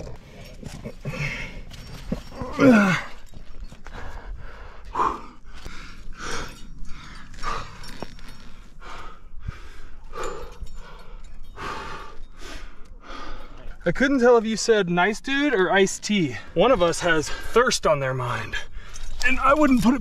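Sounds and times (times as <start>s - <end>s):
loud low grunt: 2.3s - 3.2s
person breathing hard: 3.8s - 13.8s.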